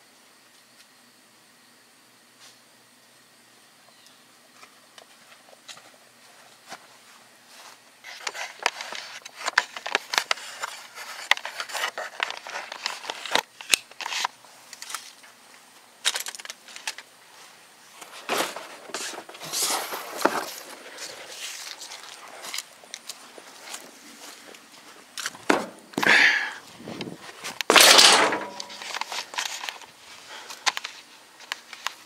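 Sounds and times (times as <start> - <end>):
scraping rustles: 17.4 - 26.0, 26.7 - 32.0.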